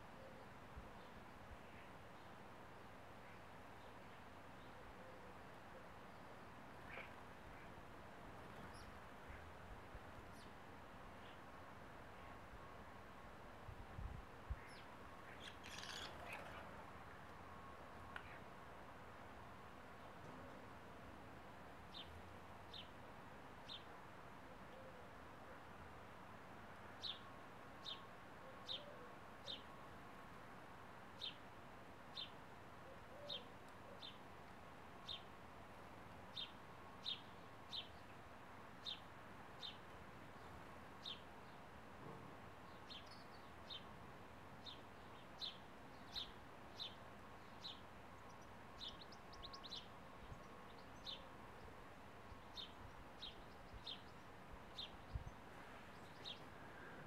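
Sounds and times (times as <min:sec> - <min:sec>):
faint steady hiss: 0:00.0 - 0:57.0
house sparrow chirping: 0:14.7 - 0:16.7.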